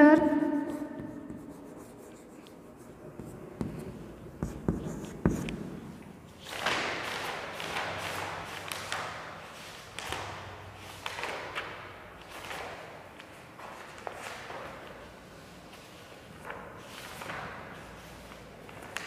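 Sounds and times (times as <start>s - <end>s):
chalk tapping on blackboard: 0.6s - 5.7s.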